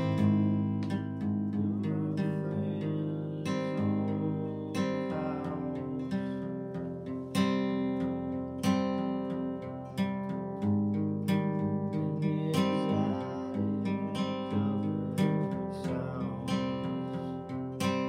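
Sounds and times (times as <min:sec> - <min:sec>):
acoustic guitar strumming: 0:00.0 - 0:18.0.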